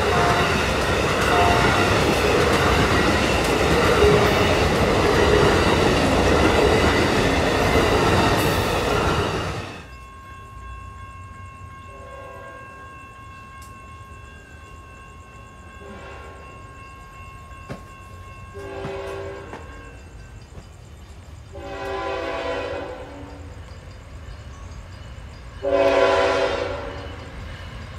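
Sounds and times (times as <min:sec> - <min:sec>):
distant train horn blasts: 0:00.0 - 0:02.8, 0:11.9 - 0:12.8, 0:15.7 - 0:16.6, 0:18.5 - 0:20.0, 0:21.5 - 0:23.6, 0:25.6 - 0:27.2
train cars rushing past: 0:00.0 - 0:10.0, 0:15.5 - 0:27.9
faint steady high tone: 0:09.8 - 0:27.9.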